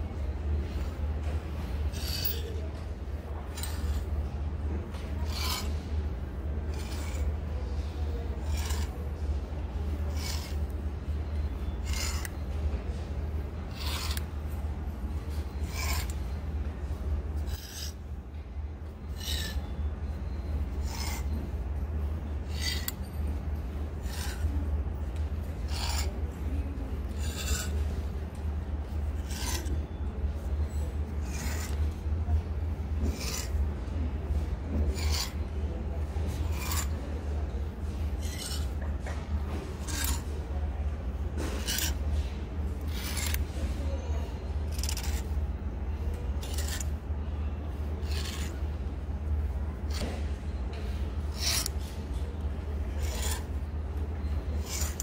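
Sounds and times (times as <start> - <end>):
steady low hum: 0.0 - 55.0
hangers scraping along rack rail: 0.8 - 2.6, 3.5 - 4.2, 5.1 - 7.5, 8.3 - 9.0, 10.0 - 10.8, 11.8 - 12.4, 13.7 - 14.5, 15.3 - 16.3, 17.3 - 18.0, 19.1 - 19.6, 20.7 - 21.4, 22.4 - 24.6, 25.5 - 26.1, 27.0 - 28.0, 28.8 - 32.1, 33.0 - 33.7, 34.7 - 35.5, 36.3 - 37.0, 37.8 - 40.4, 41.4 - 43.6, 44.6 - 45.4, 46.3 - 47.1, 48.0 - 50.1, 51.2 - 52.0, 52.8 - 53.7, 54.5 - 55.0
fabric brushing: 53.0 - 53.6.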